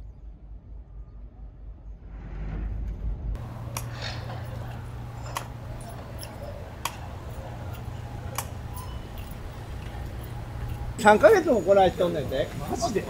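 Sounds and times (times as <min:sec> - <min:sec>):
low steady hum: 0:00.0 - 0:13.0
crutch tips tapping on pavement: 0:03.4 - 0:13.0.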